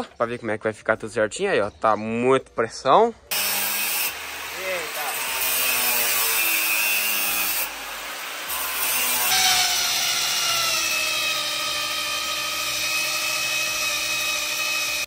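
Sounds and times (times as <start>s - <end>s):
electric drill boring into steel: 3.3s - 15.0s.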